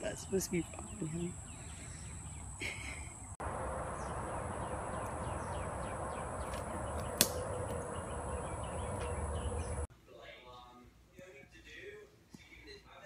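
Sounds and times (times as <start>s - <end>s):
faint bird chirps: 0.6s - 9.9s
insect drone: 0.6s - 9.9s
sharp snap: 7.0s - 7.8s.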